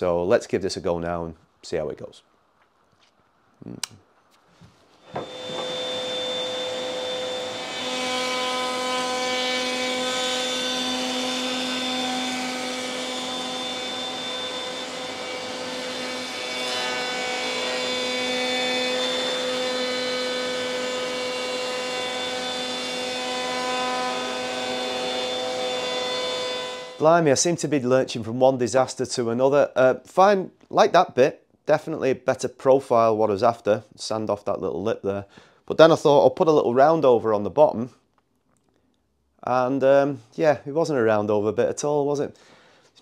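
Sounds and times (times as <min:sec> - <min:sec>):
router whining while cutting wood: 0:05.0 - 0:27.0.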